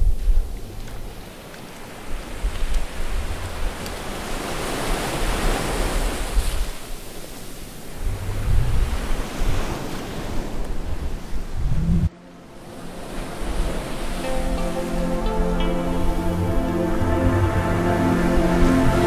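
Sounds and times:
ocean waves washing in: 0.1s - 19.0s
wind buffeting microphone: 7.9s - 12.2s.

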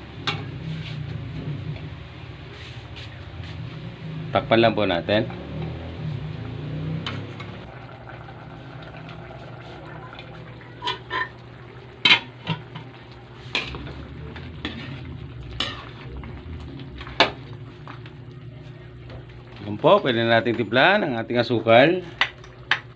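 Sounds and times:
low hum: 5.2s - 19.6s.

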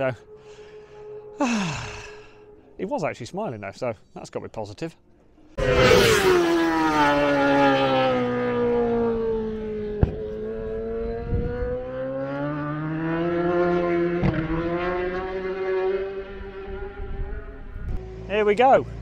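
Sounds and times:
motorcycle engine running: 5.6s - 19.0s.

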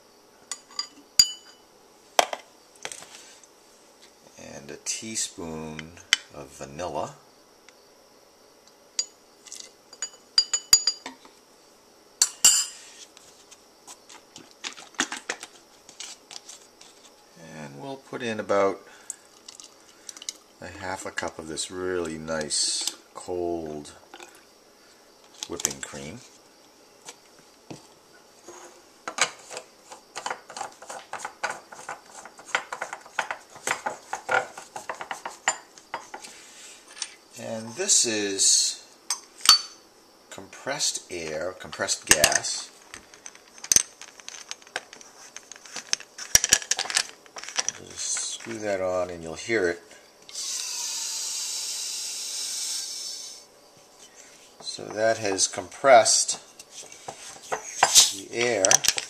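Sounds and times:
plastic parts clicking and scraping: 42.2s - 48.6s, 56.8s - 59.0s.

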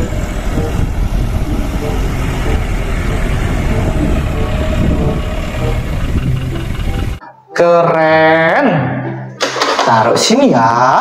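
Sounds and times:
diesel truck engine running: 0.0s - 7.2s
truck driving over rough dirt: 0.0s - 7.2s.

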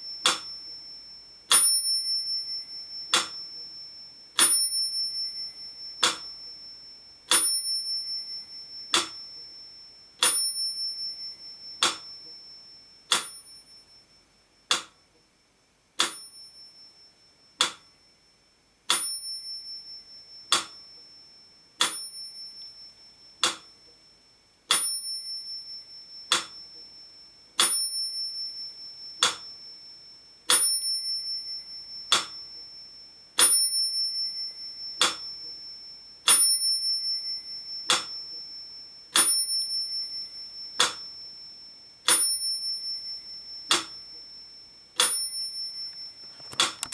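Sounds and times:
metronome ticking: 0.0s - 0.9s, 3.0s - 3.7s, 5.9s - 6.5s, 8.7s - 9.5s, 11.7s - 12.4s, 13.1s - 13.6s, 14.7s - 15.0s, 16.0s - 16.6s, 17.6s - 17.9s, 20.4s - 21.1s, 23.4s - 24.0s, 26.2s - 26.9s, 29.1s - 29.6s, 31.9s - 32.7s, 34.8s - 35.7s, 37.7s - 40.0s, 40.6s - 41.2s, 43.5s - 44.3s
high metallic ring: 0.0s - 15.2s, 16.0s - 46.9s.

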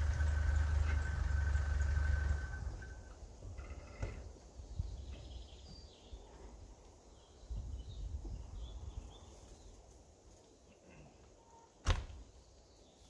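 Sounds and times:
low uneven rumble: 0.0s - 5.5s.

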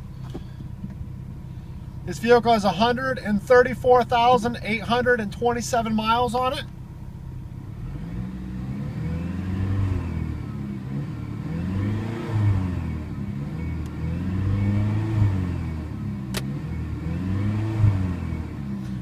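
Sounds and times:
car engine revving: 7.4s - 19.0s.

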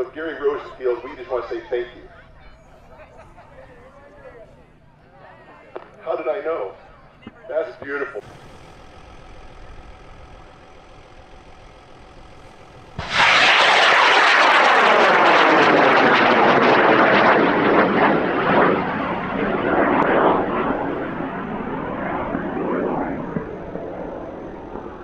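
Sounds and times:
rocket motor roaring: 7.7s - 25.0s.

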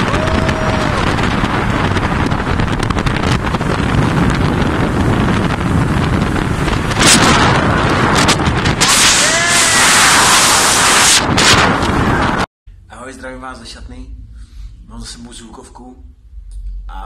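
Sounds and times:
motorboat running fast: 0.0s - 12.4s
wind buffeting microphone: 0.0s - 12.5s
person yelling: 9.1s - 10.6s.

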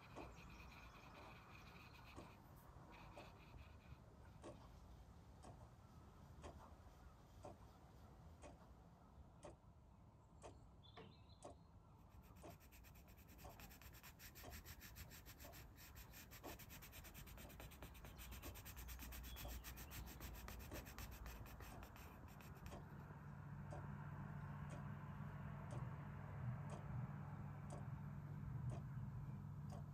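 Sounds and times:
pencil scratching on paper: 0.0s - 4.0s, 12.1s - 22.9s
faint steady ticking: 0.0s - 29.9s.

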